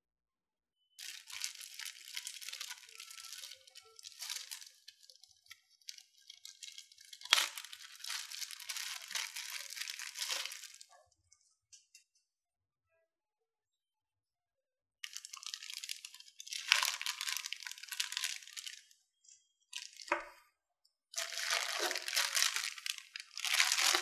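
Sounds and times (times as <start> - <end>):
plastic bag crinkling: 1.0 - 10.9, 15.0 - 18.8, 21.2 - 24.0
plastic bag sharp crack: 21.2 - 24.0.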